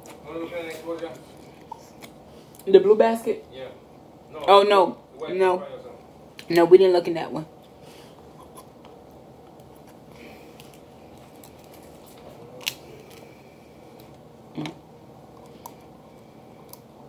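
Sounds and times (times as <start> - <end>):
crab shells cracking: 10.5 - 14.2.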